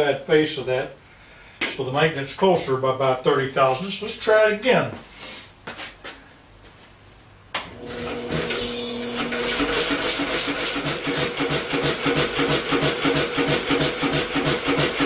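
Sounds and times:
electric motor humming: 7.6s - 15.0s
engine turning over: 7.6s - 15.0s.

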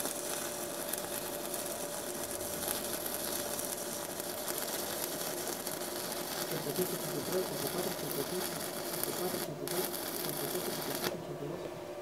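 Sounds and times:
welding arc crackling and sizzling: 0.0s - 11.2s.

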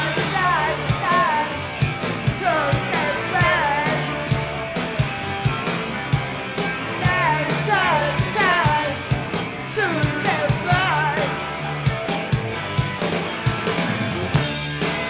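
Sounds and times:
woman singing: 0.0s - 1.6s, 2.2s - 4.0s, 7.0s - 9.0s, 9.7s - 11.4s
live rock band playing: 0.0s - 15.0s.

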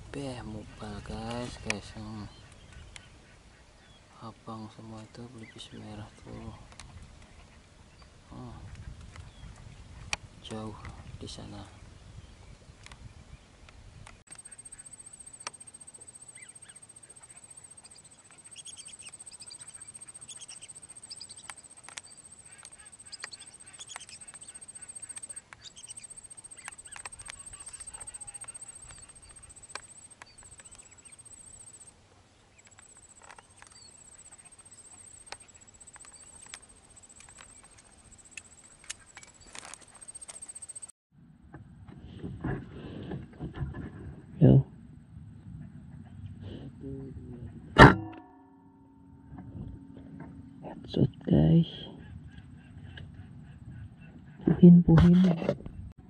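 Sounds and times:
ducks whistling calls: 14.3s - 31.9s
thin steady high tone: 14.3s - 32.0s.

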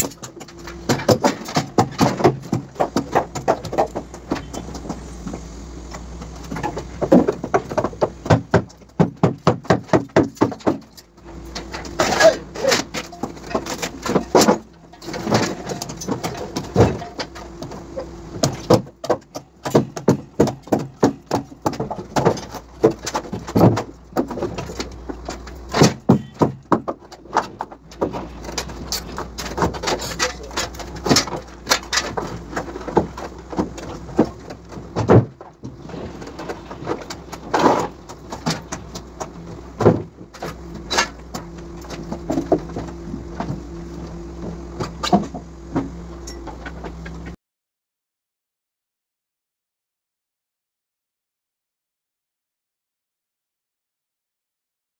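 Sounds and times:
knocks and clanks of formwork: 0.0s - 47.4s
steady hum: 0.0s - 47.4s.

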